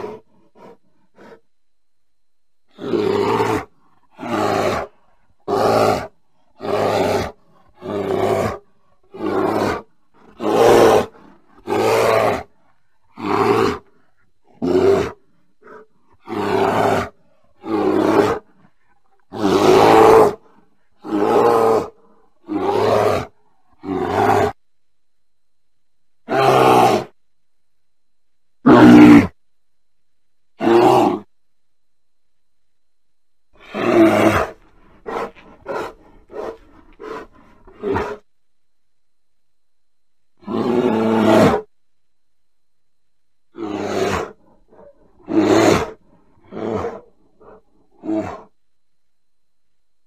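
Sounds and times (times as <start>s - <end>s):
bear calling: 2.7s - 24.6s, 33.6s - 38.3s, 43.5s - 48.6s.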